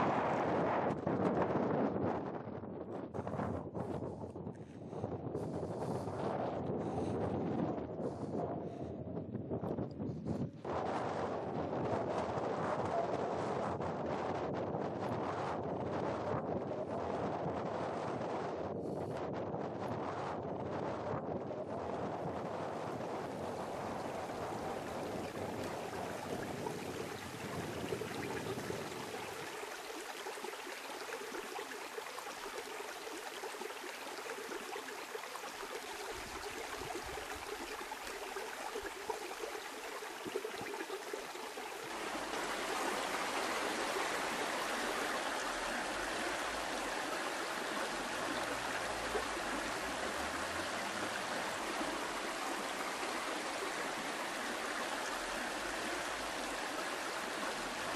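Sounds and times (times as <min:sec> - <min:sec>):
stream running over rocks: 0:00.0 - 0:01.8, 0:21.6 - 0:57.9.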